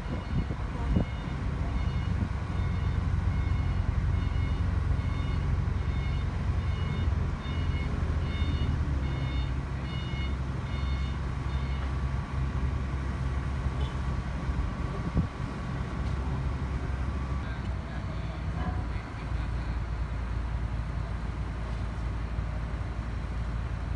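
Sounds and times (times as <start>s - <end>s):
crane diesel engine running: 0.0s - 23.9s.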